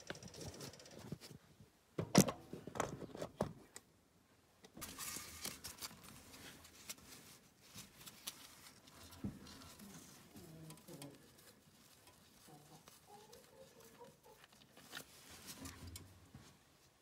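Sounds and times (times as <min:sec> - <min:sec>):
cloth rag rustling: 0:04.8 - 0:17.0.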